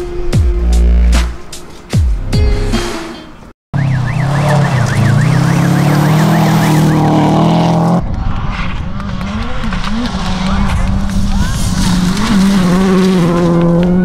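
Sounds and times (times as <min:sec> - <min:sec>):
wailing up-and-down tone: 0:03.8 - 0:08.0
gravel noise: 0:03.8 - 0:14.0
rally car engine revving: 0:03.8 - 0:14.0.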